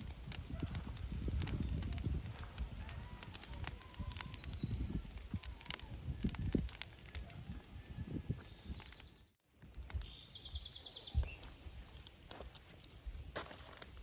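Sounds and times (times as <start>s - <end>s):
wind rumbling on microphone: 0.0s - 12.0s
birds chirping: 2.6s - 5.9s, 6.5s - 12.1s.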